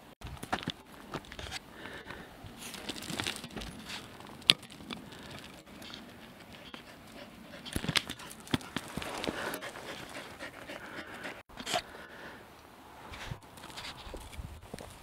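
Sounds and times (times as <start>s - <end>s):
dogs panting: 5.7s - 11.5s
footsteps on gravel: 8.0s - 10.7s.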